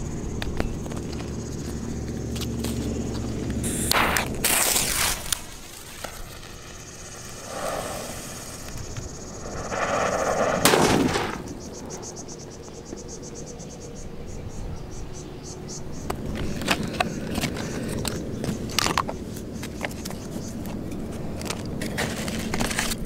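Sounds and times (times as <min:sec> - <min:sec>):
fuse hissing and sputtering: 0:02.6 - 0:13.0
firecracker bang: 0:07.2 - 0:12.2.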